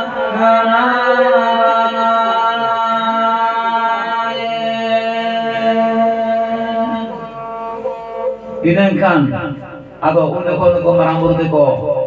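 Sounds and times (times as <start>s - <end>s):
folk chanting in held notes: 0.0s - 10.2s
bowed fiddle: 0.0s - 11.4s.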